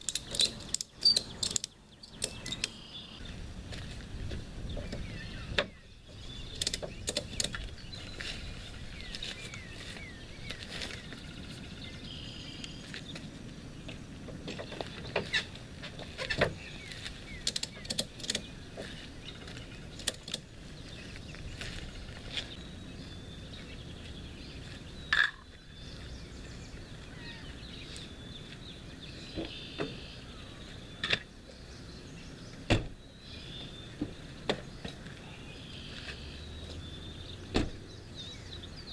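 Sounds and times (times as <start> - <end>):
gear clicks and knocks: 0.0 - 2.8, 6.5 - 7.7, 17.3 - 18.9, 19.9 - 20.5
birds chirping: 0.0 - 38.9.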